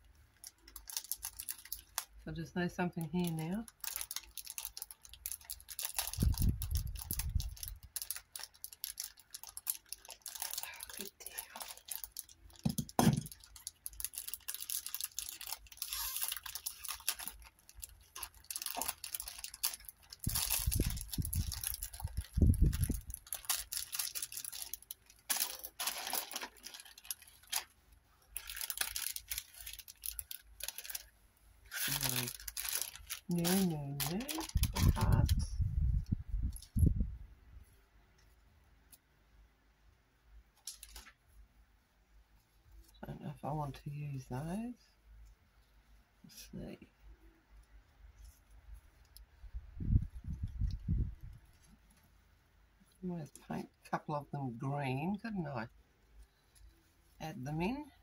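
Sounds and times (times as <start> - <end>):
plastic packet rustling: 0.3 - 35.5, 40.6 - 41.2.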